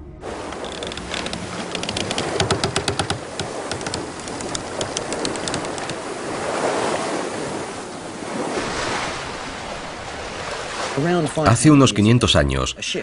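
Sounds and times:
sea waves washing: 0.0s - 12.0s
light clicks: 0.6s - 6.0s.

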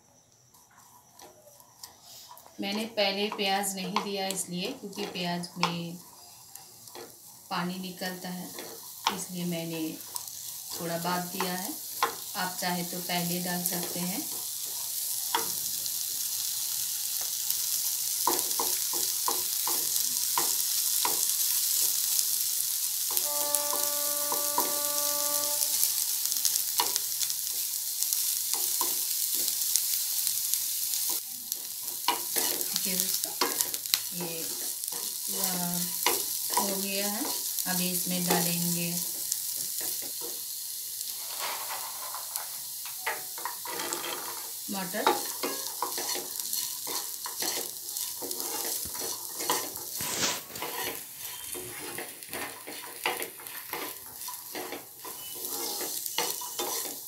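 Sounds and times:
vegetables sizzling in oil: 0.0s - 57.0s
wooden spatula scraping pan: 23.2s - 26.1s, 43.6s - 44.4s, 45.2s - 57.0s.

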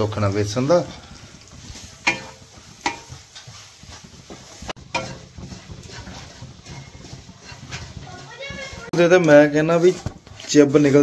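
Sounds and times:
light sizzle: 0.0s - 11.0s
wooden spatula scraping pan: 0.0s - 11.0s.

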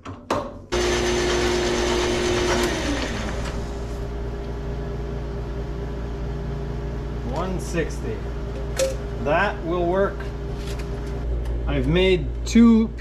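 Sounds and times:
metal lathe motor whine: 0.8s - 4.3s.

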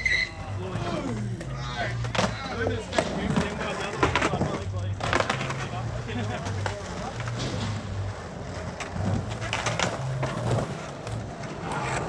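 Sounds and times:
people talking: 0.0s - 7.6s.

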